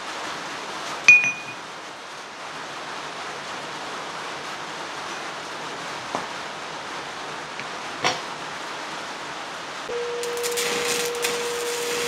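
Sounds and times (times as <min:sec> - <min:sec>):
steady hiss: 0:00.0 - 0:12.0
steel struck on anvil: 0:01.1 - 0:01.6.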